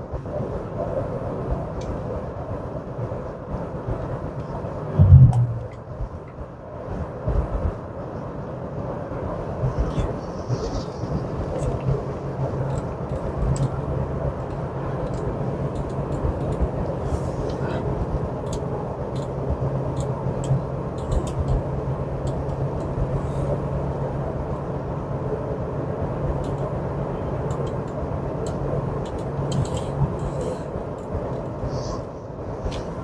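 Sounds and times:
car road and engine noise: 0.0s - 33.0s
low steady hum: 3.8s - 7.6s.

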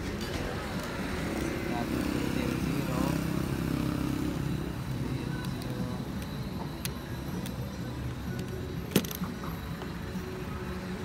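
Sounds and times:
vehicle engine rumble: 0.0s - 11.0s.

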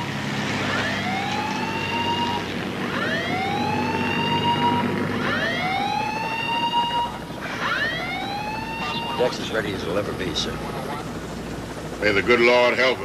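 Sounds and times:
rising whoop alarm siren: 0.0s - 9.4s
steady low hum: 0.0s - 13.0s.

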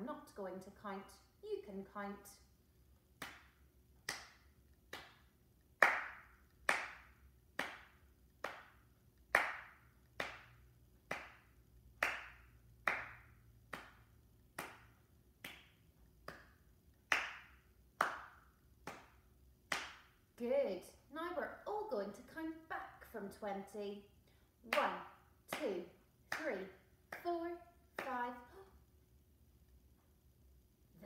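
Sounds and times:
hand claps: 3.2s - 20.2s, 24.7s - 27.3s, 28.0s - 28.3s.

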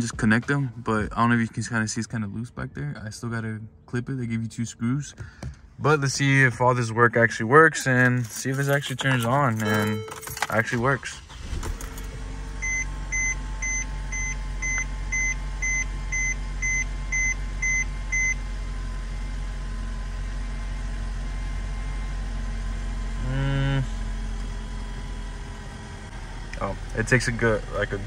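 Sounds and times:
car engine idling: 5.1s - 28.0s
car warning chime beeping: 9.6s - 11.4s, 12.5s - 18.4s.

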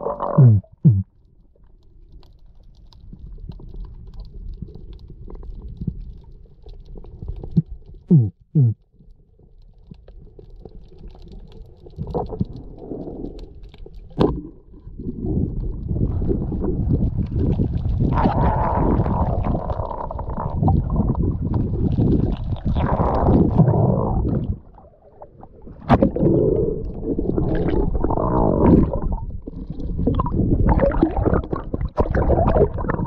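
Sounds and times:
diver grunting underwater: 0.0s - 1.1s, 8.1s - 8.8s
low water rumble: 0.0s - 33.0s.

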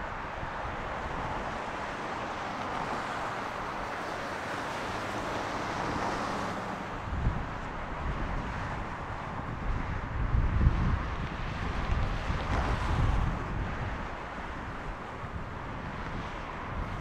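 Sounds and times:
wind buffeting microphone: 6.8s - 17.0s.

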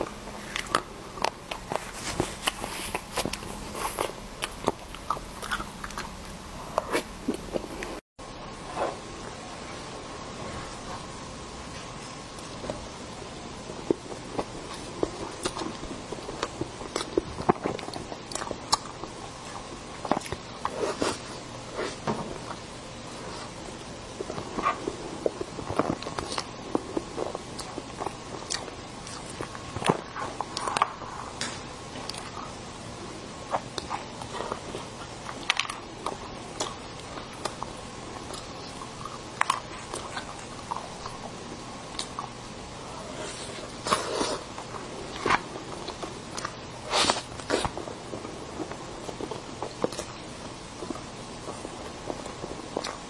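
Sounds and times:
chewing with wet smacks: 0.0s - 8.0s, 13.9s - 21.2s, 24.2s - 31.1s, 31.9s - 32.6s, 33.5s - 42.4s, 43.5s - 53.0s
faint steady hum: 0.0s - 53.0s.

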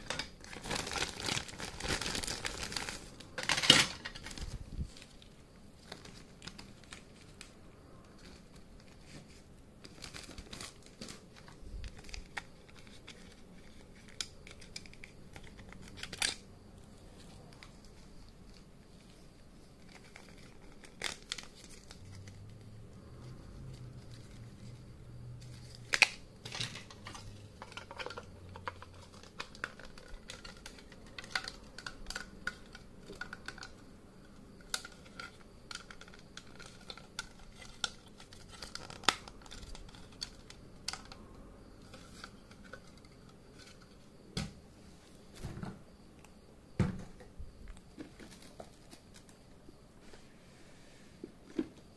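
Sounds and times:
plastic pieces clicking and clattering: 0.0s - 4.4s, 25.8s - 33.8s
plastic bag crinkling: 0.0s - 7.6s, 8.2s - 16.5s, 25.4s - 33.8s, 34.6s - 41.1s.

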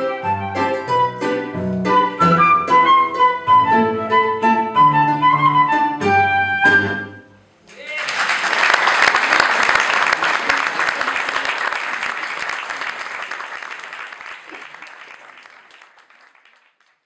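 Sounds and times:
audience applauding: 7.7s - 17.0s.

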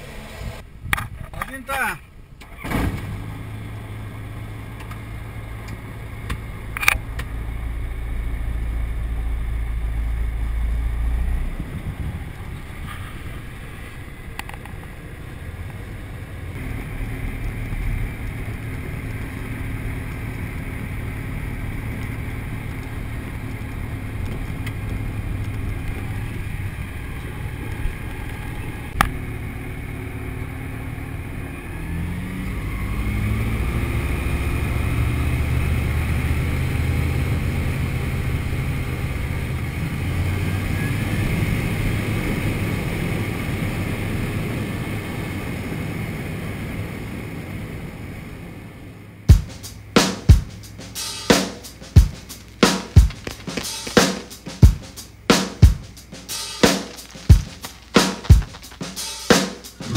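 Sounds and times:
light aircraft piston engine: 34.3s - 53.0s.

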